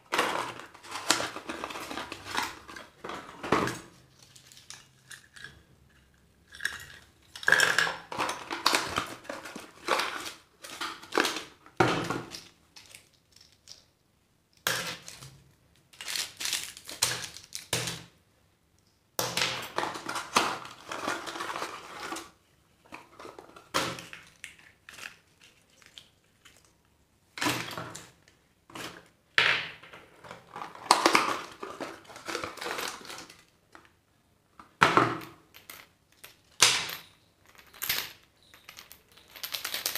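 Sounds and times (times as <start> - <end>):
plastic toys clattering: 0.0 - 18.1, 19.4 - 26.7, 29.8 - 33.9, 34.7 - 39.9
plastic wrappers crinkling: 14.9 - 17.7, 30.4 - 33.5.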